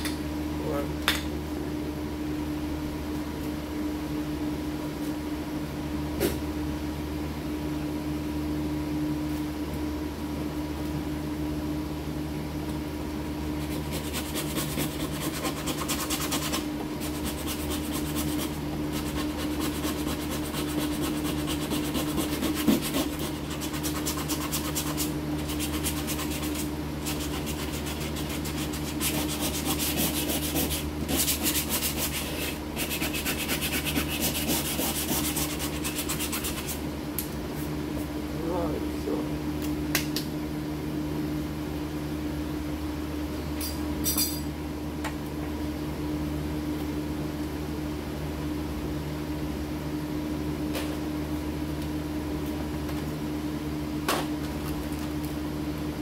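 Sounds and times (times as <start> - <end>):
continuous machine hum: 0.0 - 56.0
sanding on car panel: 13.6 - 36.8.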